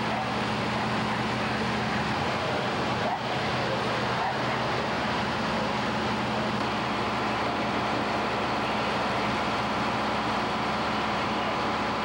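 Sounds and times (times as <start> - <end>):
fire engines running: 0.0 - 12.0.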